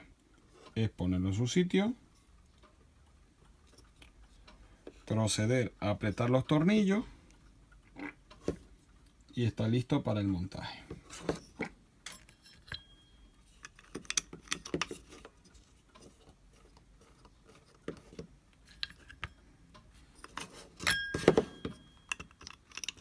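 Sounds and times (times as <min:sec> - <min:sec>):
metallic ring: 0:12.0 - 0:13.6, 0:20.8 - 0:22.3.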